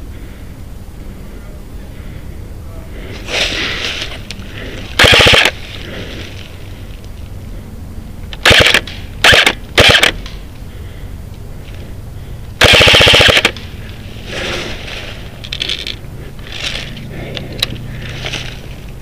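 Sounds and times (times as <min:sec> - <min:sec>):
airsoft rifle full-auto bursts: 0:05.0 - 0:05.6, 0:08.4 - 0:10.2, 0:12.6 - 0:13.6.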